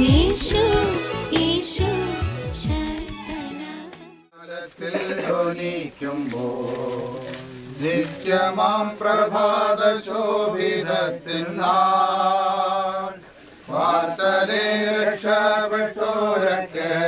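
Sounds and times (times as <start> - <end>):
group singing slow hymn: 0.0 - 1.2, 4.4 - 17.0.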